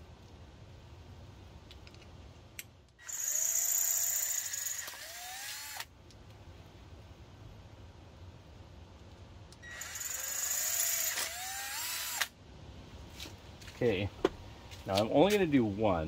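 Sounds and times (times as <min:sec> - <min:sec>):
power drill drilling aluminium: 0:03.0 - 0:05.9, 0:09.6 - 0:12.3.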